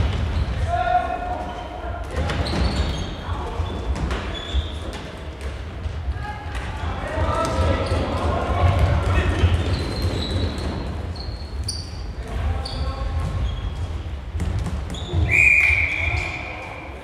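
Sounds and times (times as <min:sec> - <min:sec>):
shoes squeaking on hall floor: 0:00.0 - 0:06.1, 0:07.2 - 0:17.0.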